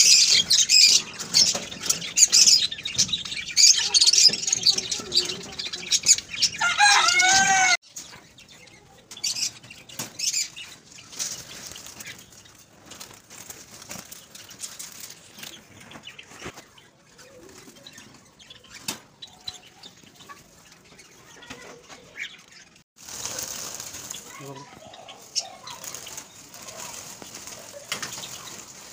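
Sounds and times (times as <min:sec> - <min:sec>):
sparrows chirping: 0:00.0 - 0:28.9
wing flutters: 0:09.3 - 0:19.0, 0:20.4 - 0:28.9.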